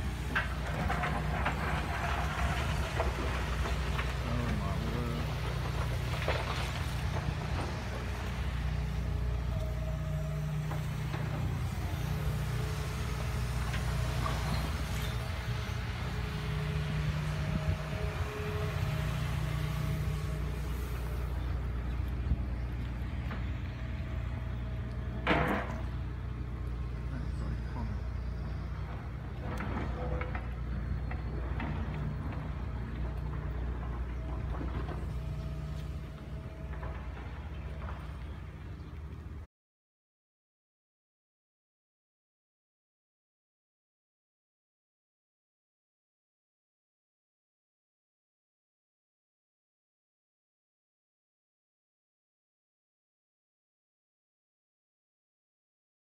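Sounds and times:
excavator diesel engine droning: 0.0s - 39.5s.

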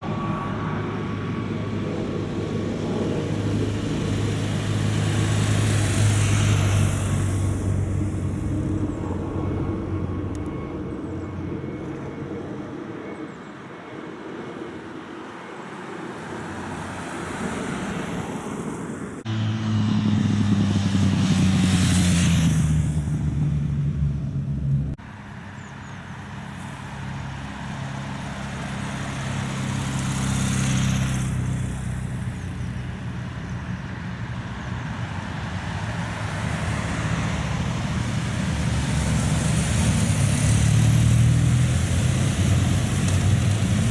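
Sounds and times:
police motorcycle engines: 0.0s - 43.9s
vehicles passing on road: 0.0s - 43.9s.

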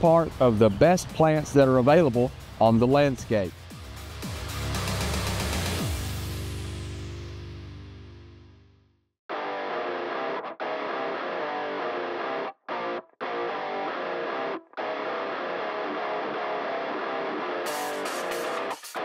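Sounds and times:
guitar-led music: 9.3s - 19.0s.

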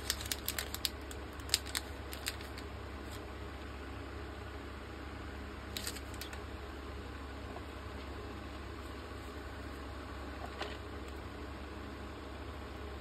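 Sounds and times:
wipe sachets crinkling: 0.0s - 3.3s, 5.7s - 6.4s
steady low hum: 0.0s - 13.0s.

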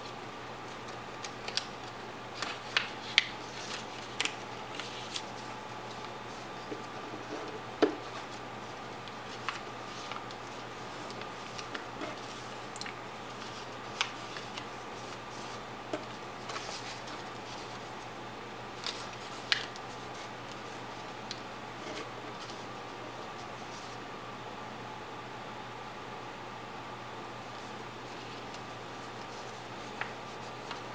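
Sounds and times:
steady background hiss: 0.0s - 30.9s
paper being folded and creased: 0.6s - 18.0s, 18.8s - 21.1s, 27.5s - 30.9s.

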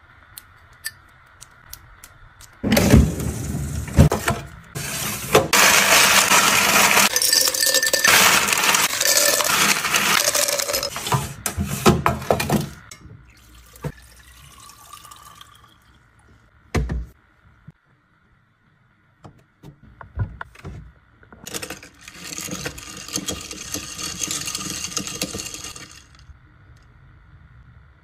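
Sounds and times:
ice cubes clattering into metal bin: 2.7s - 13.0s, 21.5s - 26.2s.

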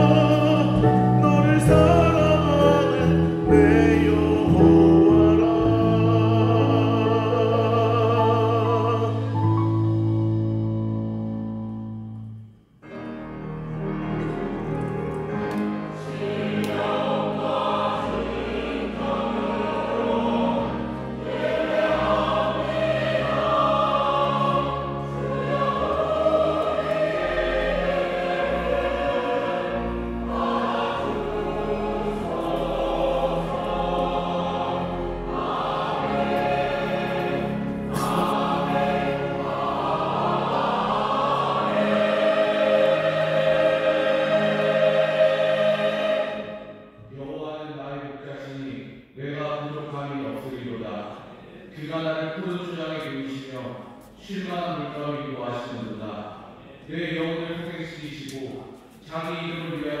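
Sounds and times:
choir singing a slow praise song: 0.0s - 9.5s, 15.9s - 47.0s, 50.6s - 52.0s.

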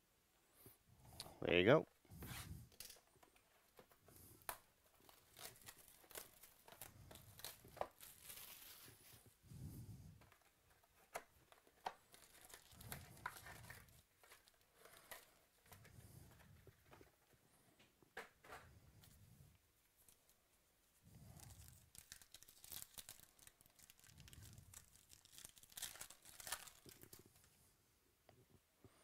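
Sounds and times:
plastic wrap crinkling: 2.7s - 9.4s, 10.2s - 17.0s, 21.2s - 27.5s.

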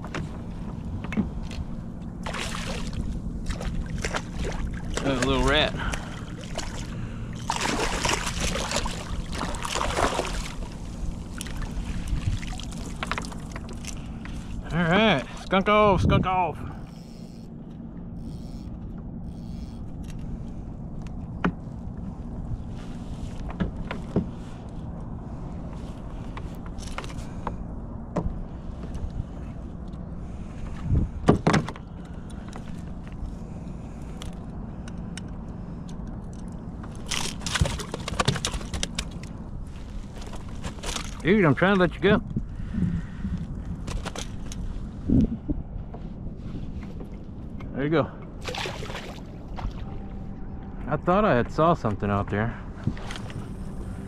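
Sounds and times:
water sloshing: 0.0s - 15.6s, 36.3s - 41.3s, 48.3s - 50.8s
fish splashing in water: 2.2s - 5.3s, 5.9s - 13.9s, 48.4s - 49.9s
gear clicking and knocking in kayak: 35.9s - 39.4s.

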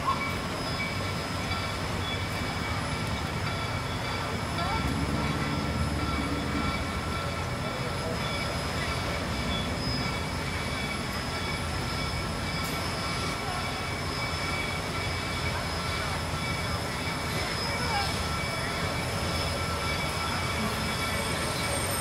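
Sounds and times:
high-pitched wheel squeal: 0.0s - 22.0s
steam locomotive rumble: 0.0s - 22.0s.

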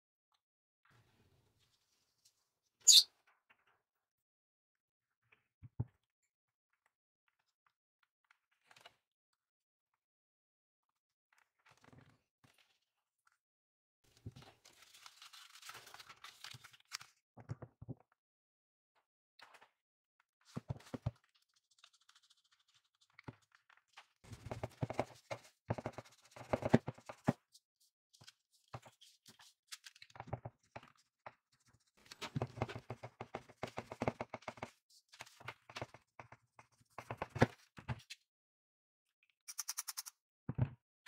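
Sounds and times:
paper rustling: 14.6s - 17.1s.

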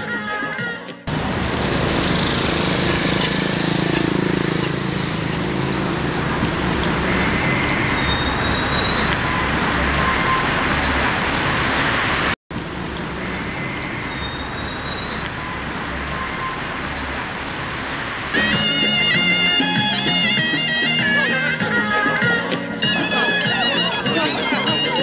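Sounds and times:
passing road traffic: 0.0s - 25.0s.

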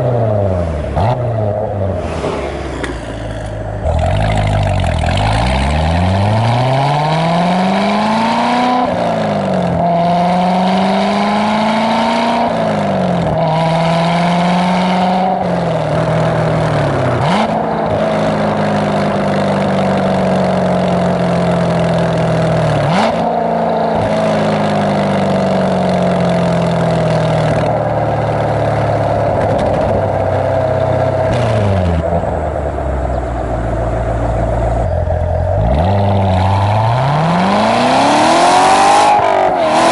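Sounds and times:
sports car exhaust accelerating: 0.0s - 39.9s.

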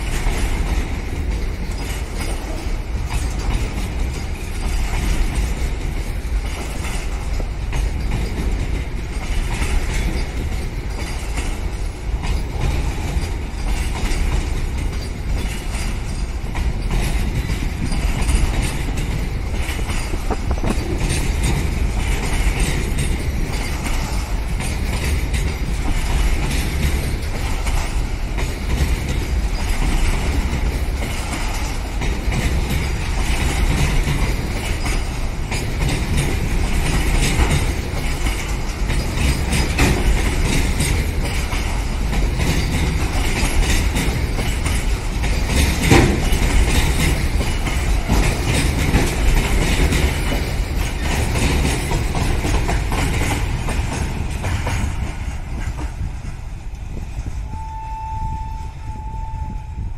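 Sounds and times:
wheels clattering over rail joints: 0.0s - 57.4s
steel wheels rumbling on rails: 0.0s - 59.9s.

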